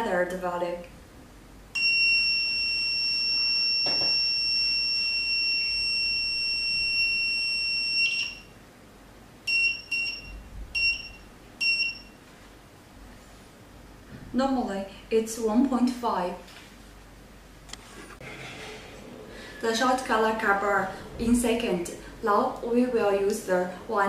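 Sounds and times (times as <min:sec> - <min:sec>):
long high buzzer beep: 0:01.7 - 0:08.6, 0:09.5 - 0:12.2
short buzzer beeps: 0:01.8 - 0:08.5, 0:09.5 - 0:12.2.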